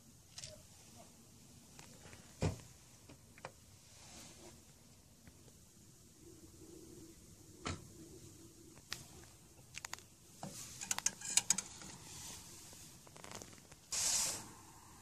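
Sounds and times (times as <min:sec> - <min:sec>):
plastic spork scraping pot and bowl: 0:10.8 - 0:11.9.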